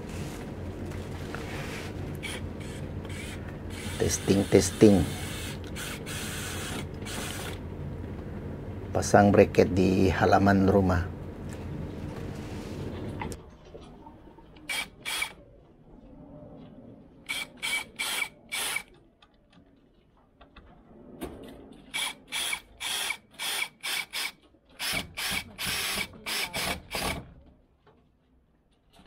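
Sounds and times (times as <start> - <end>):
drill driving screws into wood: 2.2 - 7.6, 14.7 - 15.4, 17.3 - 18.9, 21.9 - 27.3.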